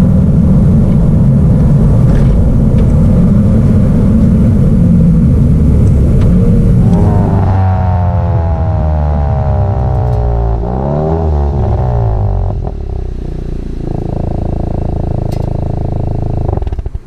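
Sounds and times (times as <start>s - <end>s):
car exhaust slowing to idle: 0.0s - 17.0s.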